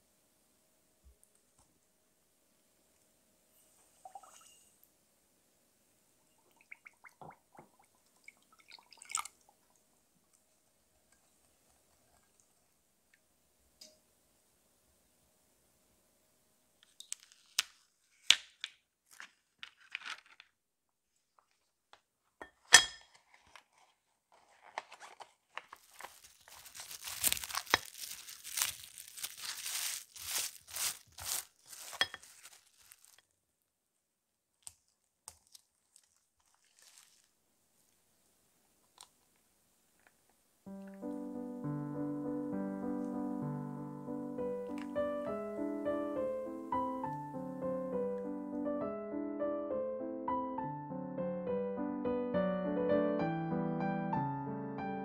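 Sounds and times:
cling film crinkling: 0:16.8 - 0:20.6, 0:23.2 - 0:33.3, 0:34.6 - 0:37.4.

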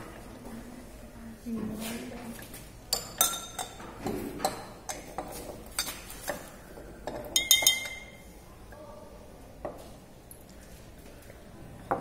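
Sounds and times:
glassware clinking and knocking: 0:02.9 - 0:08.2.

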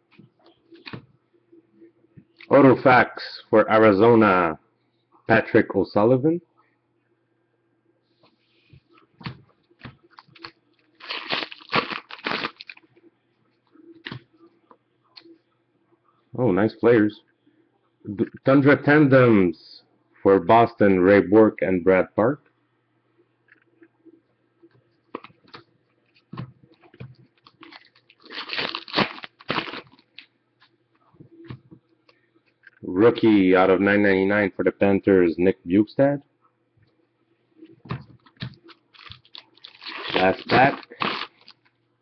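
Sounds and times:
foil wrapper crinkling: 0:10.1 - 0:12.8, 0:27.4 - 0:30.3, 0:38.7 - 0:41.7.

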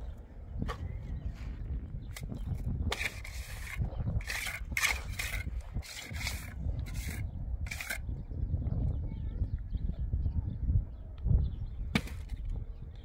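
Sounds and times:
trowel scraping wet cement: 0:02.1 - 0:08.0.

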